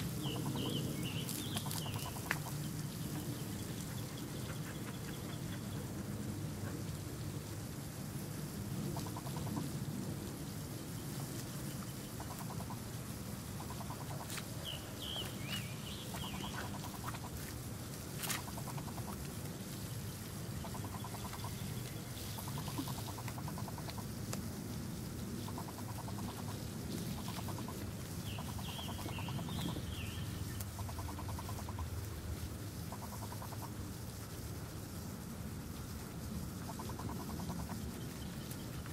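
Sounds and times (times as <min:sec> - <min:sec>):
birds chirping: 0:00.0 - 0:07.2, 0:08.9 - 0:17.6, 0:18.2 - 0:24.0, 0:25.6 - 0:31.8.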